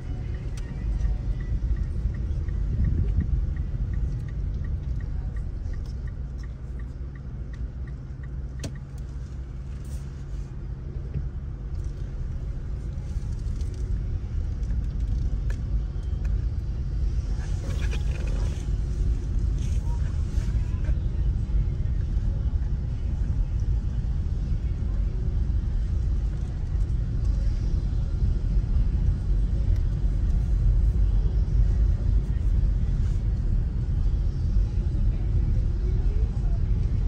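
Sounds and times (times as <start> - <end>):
turn signal ticking: 0.0 - 9.9
car engine and tyre rumble: 0.0 - 37.0.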